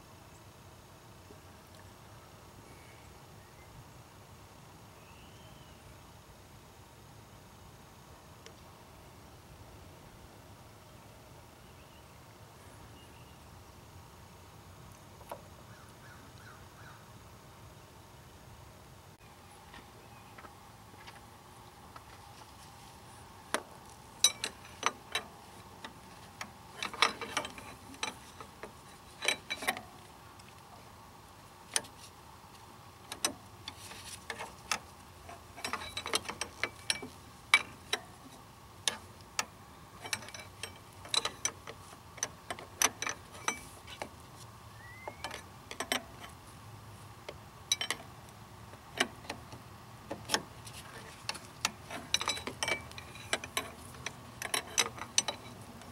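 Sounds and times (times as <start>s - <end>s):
hand tools clinking on metal: 24.2s - 30.1s, 33.1s - 44.1s, 44.8s - 46.4s, 47.3s - 48.2s, 48.8s - 55.9s.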